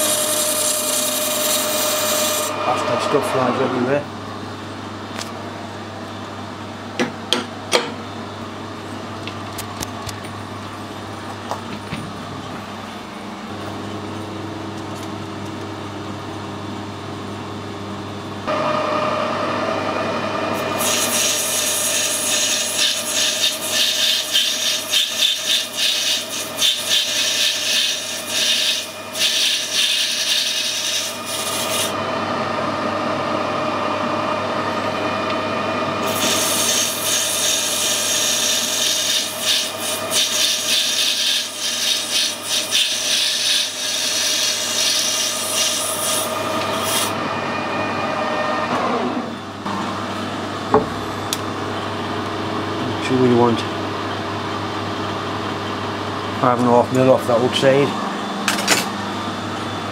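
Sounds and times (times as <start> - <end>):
boring bar cutting metal: 0.0 - 4.0, 20.6 - 32.0, 36.0 - 47.2
metal lathe running: 0.0 - 4.7, 18.5 - 49.9.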